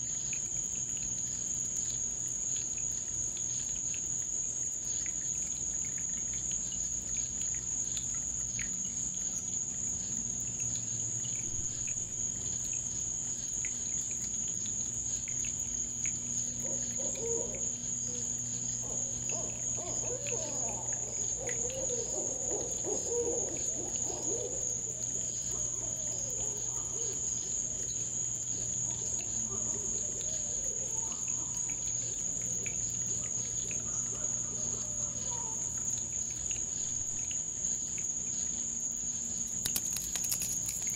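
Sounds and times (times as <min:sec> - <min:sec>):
cricket chorus trilling: 0:00.0 - 0:40.9
lower wavering calls: 0:16.5 - 0:28.0.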